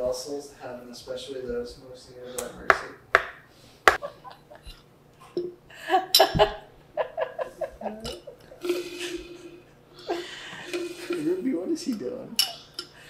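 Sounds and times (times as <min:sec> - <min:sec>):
woman laughing: 0:04.0 - 0:04.8, 0:05.7 - 0:10.7.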